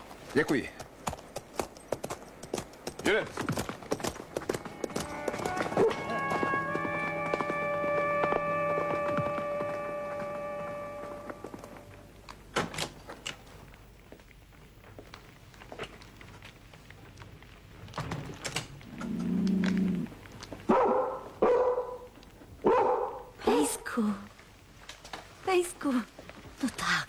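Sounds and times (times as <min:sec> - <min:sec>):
music: 0:04.5 - 0:12.0
dog barking: 0:20.7 - 0:23.7.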